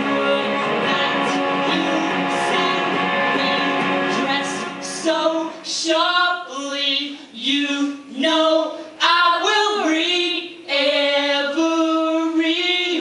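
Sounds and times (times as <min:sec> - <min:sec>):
electric guitar chords: 0:00.0 - 0:05.8
woman singing: 0:00.0 - 0:13.0.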